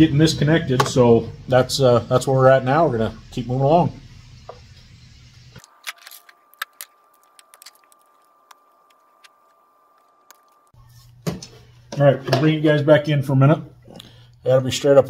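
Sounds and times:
small tools clicking and tapping: 5.6 - 10.6.

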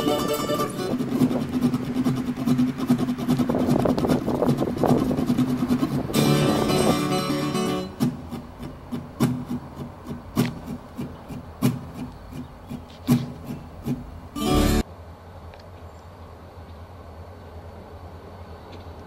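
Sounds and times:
acoustic guitar strumming: 0.0 - 14.8
faint steady background noise: 0.0 - 19.0.

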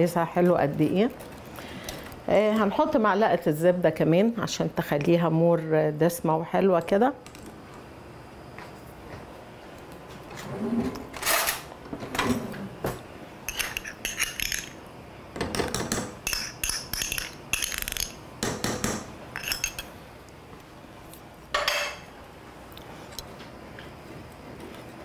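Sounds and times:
spoon and whisk scraping saucepan: 13.5 - 14.7, 19.4 - 19.8.

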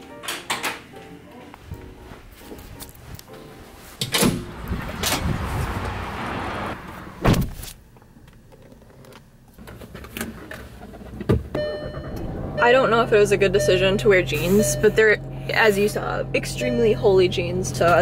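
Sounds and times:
car door shutting with thud: 7.2 - 7.6.

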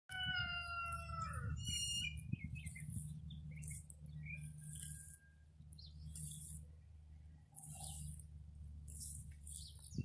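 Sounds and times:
small birds chirping: 0.3 - 10.0
tortoises chewing grass: 1.0 - 10.0.

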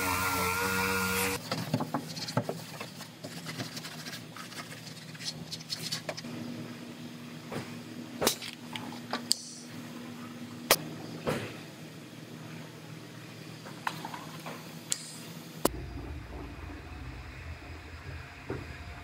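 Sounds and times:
pneumatic sander whining on metal: 0.0 - 1.4.

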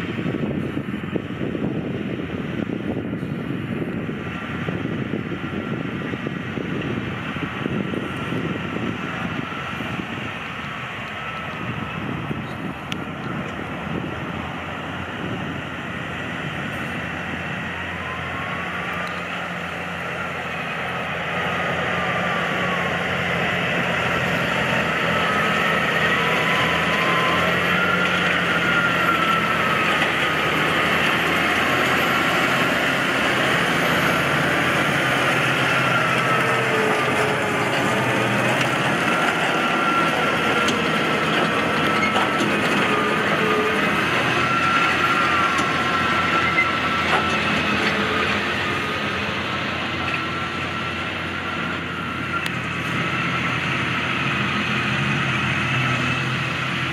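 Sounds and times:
wind on microphone: 0.0 - 18.6
tractor engine running: 0.0 - 56.9.

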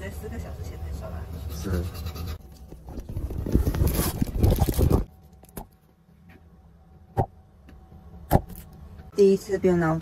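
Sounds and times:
close rustling and scraping: 1.4 - 5.1.

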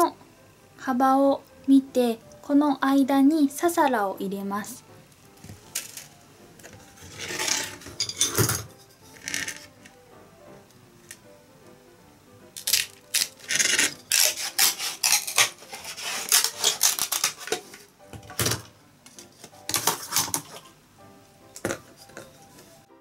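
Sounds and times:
soft background music: 0.0 - 23.0
bamboo splitting cracks: 12.6 - 17.8.

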